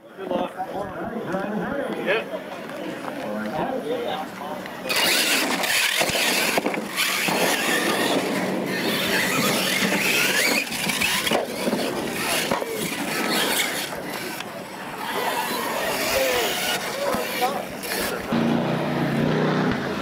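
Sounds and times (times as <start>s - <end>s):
electric motors whining: 4.8s - 19.3s.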